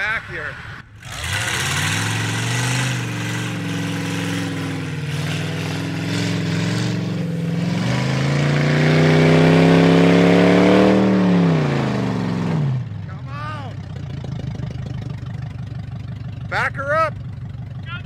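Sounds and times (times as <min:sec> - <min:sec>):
truck engine pulling under load: 0:00.9 - 0:10.0.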